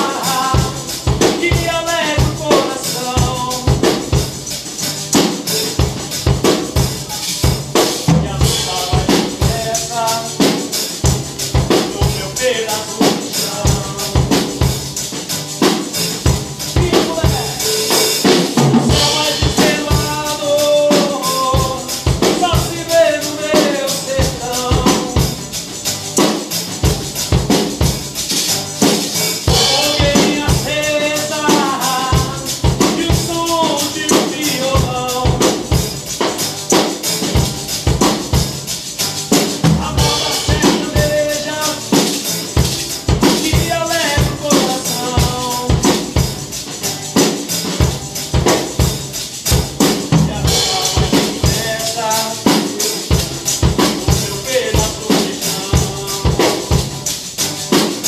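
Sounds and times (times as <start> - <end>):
person singing: 0.0 - 4.1, 8.1 - 10.7, 11.7 - 14.6, 16.8 - 25.5, 29.5 - 35.8, 39.7 - 42.5, 43.2 - 46.2, 50.1 - 57.0
acoustic guitar: 0.0 - 58.0
drum kit beat: 0.0 - 58.0
hand shaker: 0.0 - 58.0.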